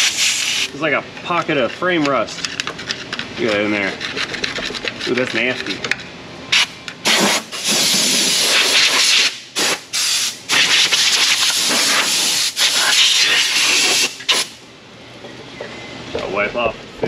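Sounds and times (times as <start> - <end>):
compressed-air blow gun hissing: 7.1 - 14.5.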